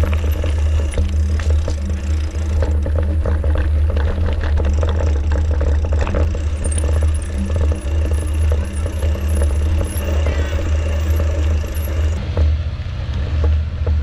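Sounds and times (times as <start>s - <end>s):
bike rattling over bumps: 0.0s - 14.0s
mountain bike rolling on dirt trail: 0.0s - 14.0s.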